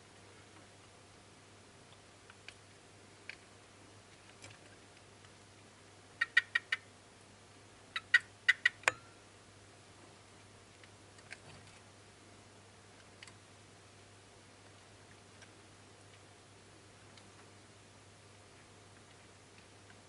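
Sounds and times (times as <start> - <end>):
toads making sharp clicks: 6.2 - 6.9, 7.9 - 9.1.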